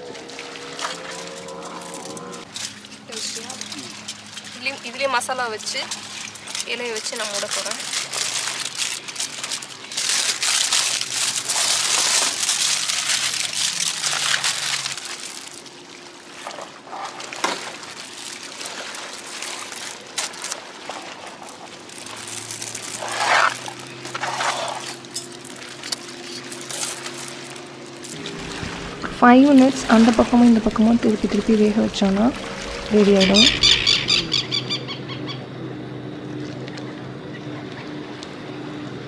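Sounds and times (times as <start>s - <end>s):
aluminium foil crinkling: 5.6s - 15.7s, 18.0s - 20.7s, 21.3s - 28.2s.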